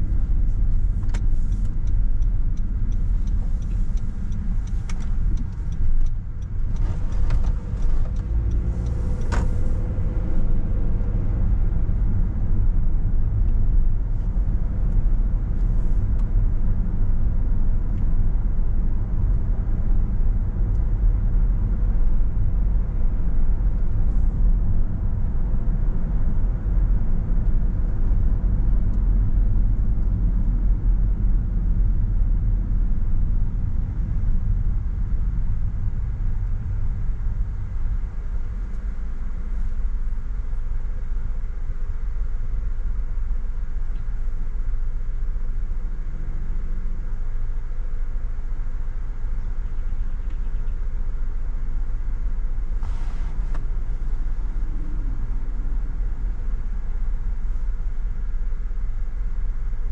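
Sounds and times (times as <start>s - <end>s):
car tyres and engine rumble: 0.0s - 59.9s
light clicks and ticks: 0.2s - 9.9s.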